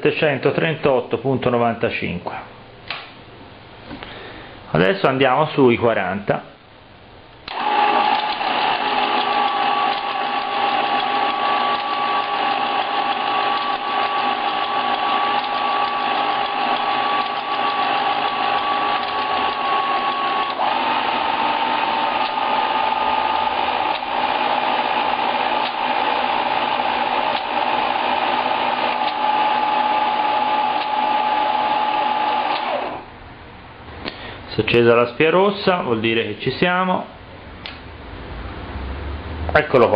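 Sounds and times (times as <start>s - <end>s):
motor whine: 7.5s - 33.1s.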